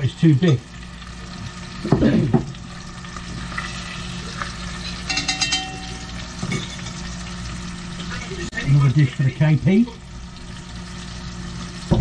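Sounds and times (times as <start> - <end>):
sauce sizzling in a pan: 0.0 - 12.0
short ringing sound: 5.0 - 7.0.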